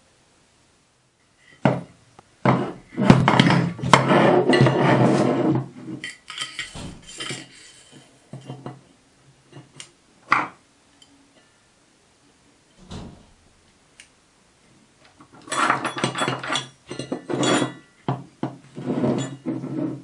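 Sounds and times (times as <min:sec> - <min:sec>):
metal parts scraping and clinking: 0:05.8 - 0:08.7, 0:15.4 - 0:17.9
metal parts knocking: 0:06.0 - 0:07.5.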